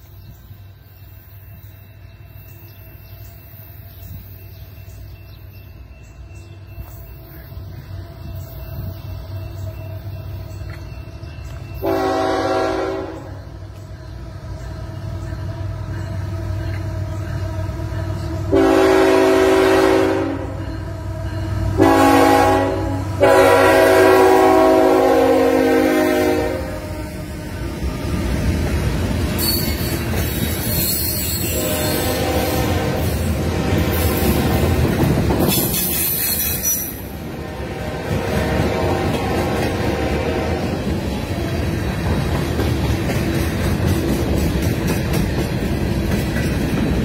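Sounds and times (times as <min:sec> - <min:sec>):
train cars rolling past: 0:00.0 - 0:47.0
train air horn blasts: 0:11.8 - 0:13.4, 0:17.7 - 0:27.6, 0:30.7 - 0:34.8, 0:35.5 - 0:40.9.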